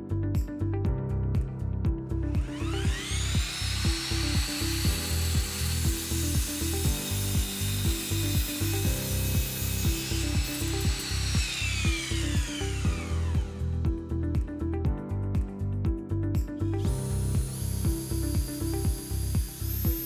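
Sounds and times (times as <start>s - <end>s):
background music with steady beat: 0.0s - 20.0s
mitre saw cutting wood: 2.4s - 13.7s, 17.1s - 20.0s.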